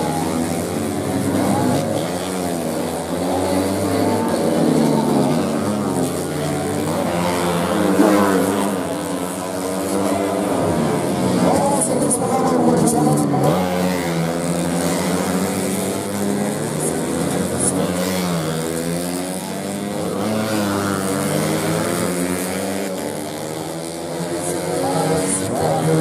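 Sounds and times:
motorcycles revving past: 0.0 - 26.0.

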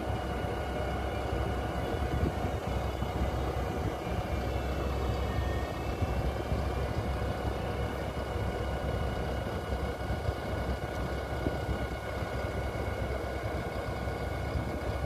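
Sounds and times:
faint high whines: 0.0 - 9.3
tractor low rumble: 0.0 - 15.0.

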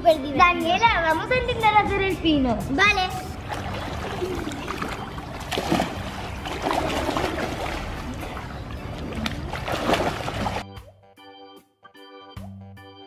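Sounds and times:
pool water splashing: 3.3 - 10.7
organ-like music: 3.7 - 13.0.

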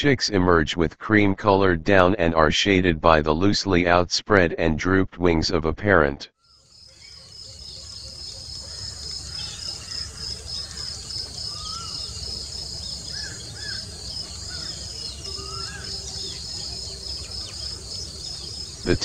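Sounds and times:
insects chirring: 6.5 - 18.9
small birds chirping and whistling: 6.9 - 19.0.

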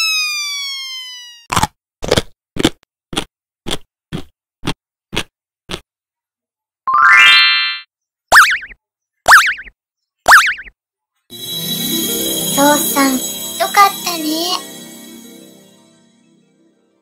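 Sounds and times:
cartoon chewing noises: 1.4 - 5.9
rising musical glide: 11.3 - 17.0.

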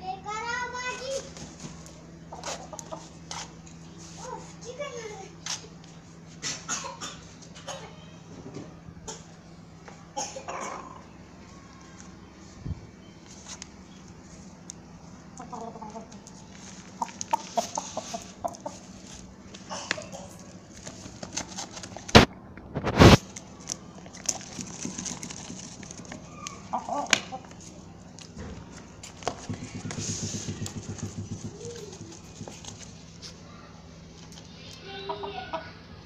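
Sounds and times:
rooster clucking: 15.4 - 16.2, 17.0 - 18.9
rooster pecking taps: 29.3 - 32.6
sharp knocks on concrete: 29.3 - 32.6.

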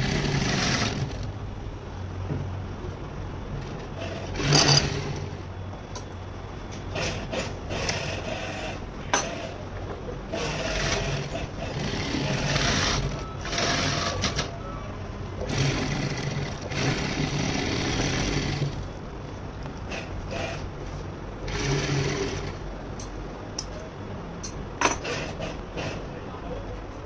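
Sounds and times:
sewing machine stitching: 0.0 - 1.3, 4.0 - 5.4, 6.9 - 9.5, 10.3 - 14.6, 15.4 - 18.9, 21.4 - 22.6.

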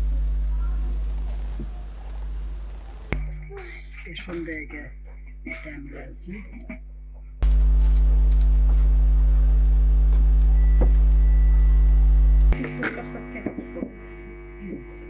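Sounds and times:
faint voices: 0.0 - 3.9
loud electrical mains hum: 0.0 - 15.0
quiet hum: 0.0 - 15.0.

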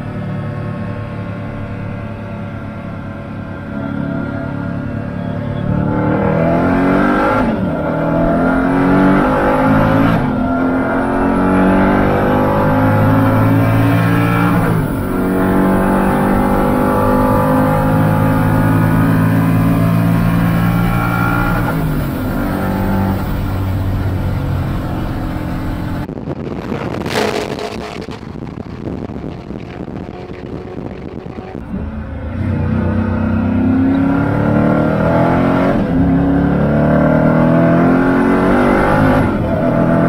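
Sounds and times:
car engine accelerating through gears: 0.0 - 40.0.

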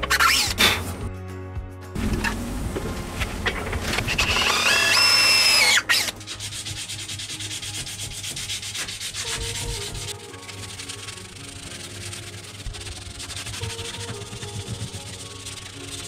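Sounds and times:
hand sanding wood: 3.9 - 16.0.

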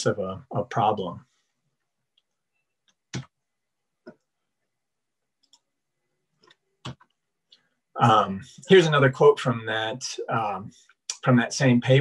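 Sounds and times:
computer mouse clicks: 5.4 - 5.7.

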